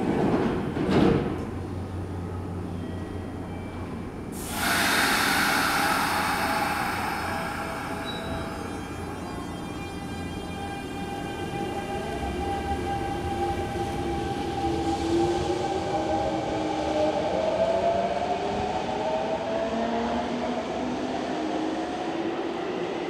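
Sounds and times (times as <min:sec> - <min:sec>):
train running rumble: 0:04.4 - 0:09.7
traction motors whining: 0:04.4 - 0:13.6.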